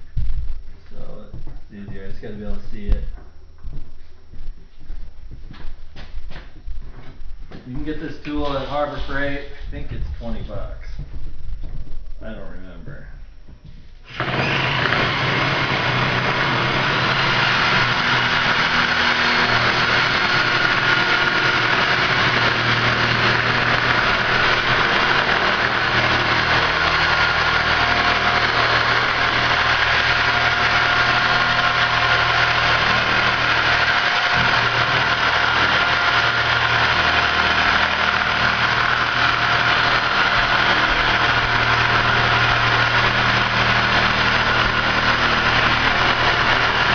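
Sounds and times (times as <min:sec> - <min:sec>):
power cutting tool cutting pipe: 0:14.1 - 0:46.9.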